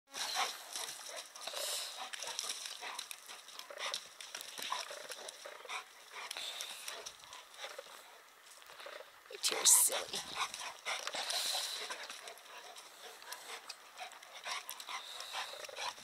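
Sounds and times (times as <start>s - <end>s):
dogs play-fighting: 0.1s - 16.0s.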